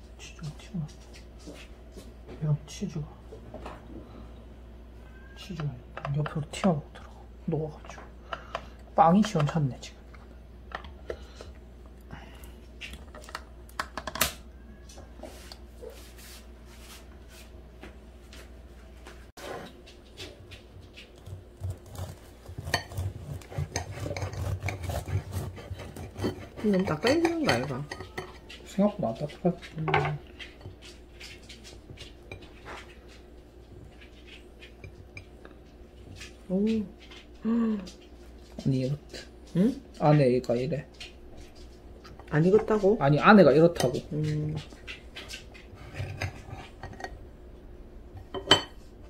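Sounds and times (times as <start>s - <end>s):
sandwich crackling: 19.9s - 27.0s.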